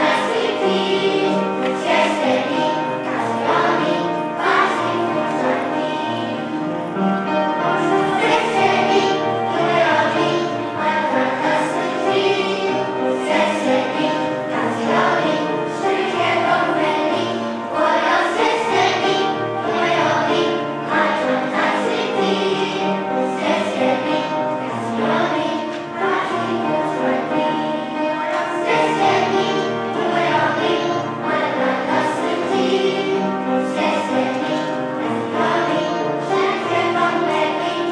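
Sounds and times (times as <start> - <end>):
children's choir singing: 0.0 - 37.9.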